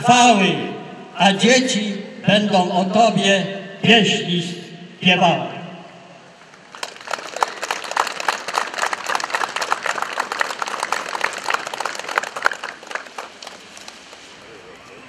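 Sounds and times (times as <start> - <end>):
small group applauding: 6.5 - 14.4.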